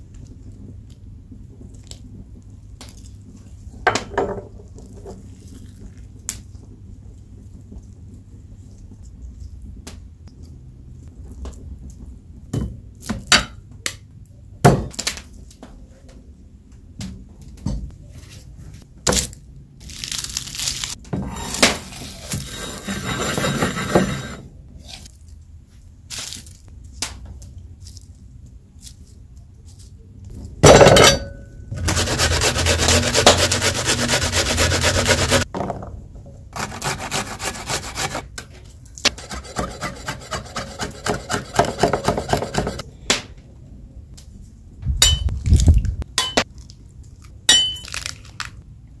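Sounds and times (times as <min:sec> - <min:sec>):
steady rasping: 0:21.3 - 0:24.4, 0:31.7 - 0:35.4, 0:36.6 - 0:38.2, 0:39.1 - 0:42.8
rough scraping and grinding: 0:21.3 - 0:25.1, 0:31.7 - 0:35.5, 0:36.6 - 0:38.2, 0:39.1 - 0:42.8
quick regular strokes: 0:31.7 - 0:35.5.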